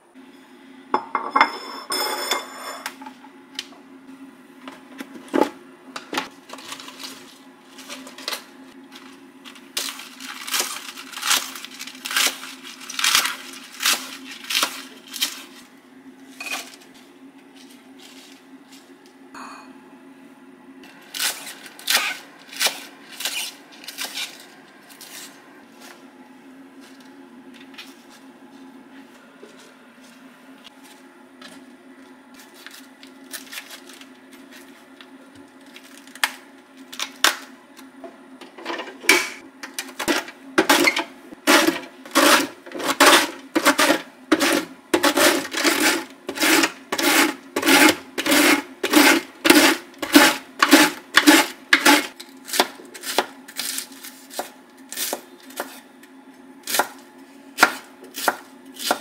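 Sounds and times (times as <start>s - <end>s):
mandoline slicer scraping strokes: 41.5s - 52.1s
knife chops on cutting board: 57.6s - 59.0s.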